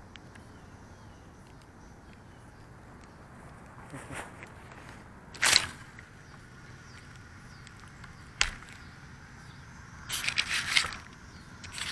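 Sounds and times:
faint outdoor background: 0:00.0 - 0:11.9
camera rustling and scraping: 0:03.0 - 0:08.9, 0:10.0 - 0:11.9.

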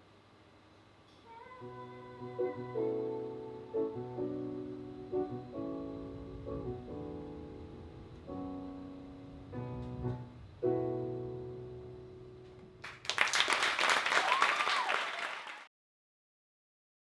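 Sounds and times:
piano chords: 0:01.6 - 0:13.4
audience applause: 0:12.8 - 0:15.7.

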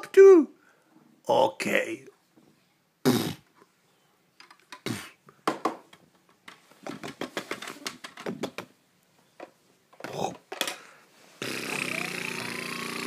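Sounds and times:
plastic toys clicking and knocking: 0:04.4 - 0:04.8, 0:05.4 - 0:08.8.

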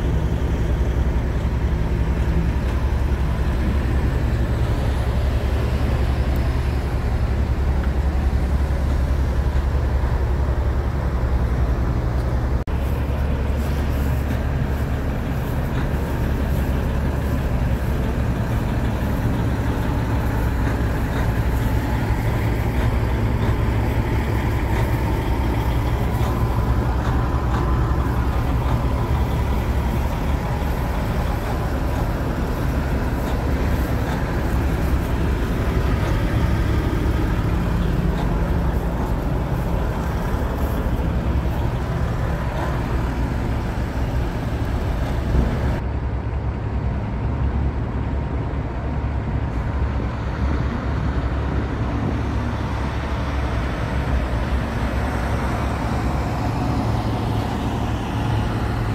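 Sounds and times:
diesel truck engines running: 0:00.0 - 0:58.9
road traffic noise: 0:00.0 - 0:58.9.

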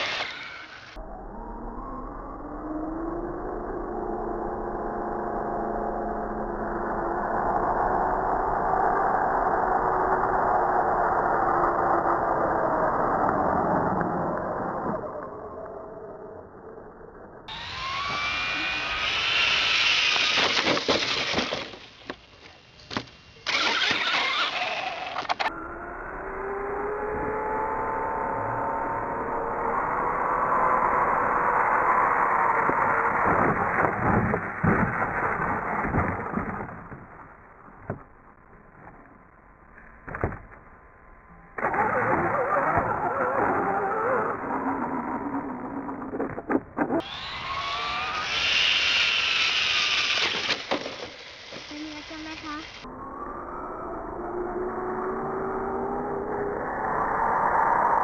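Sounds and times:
electric motor whine: 0:00.0 - 0:16.0, 0:17.5 - 0:22.2, 0:23.5 - 0:37.0, 0:47.0 - 0:58.0
tyres on gravel: 0:17.5 - 0:25.5, 0:48.0 - 0:52.8.

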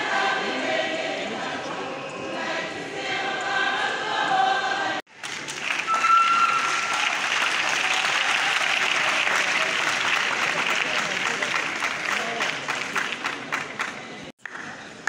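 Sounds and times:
group of voices singing: 0:00.0 - 0:05.1
audience applauding: 0:05.1 - 0:14.8
held high note: 0:05.9 - 0:07.3.

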